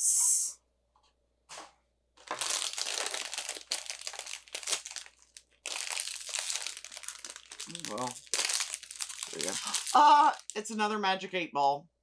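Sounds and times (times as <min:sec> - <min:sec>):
packaging crinkling: 0:02.2 - 0:10.6.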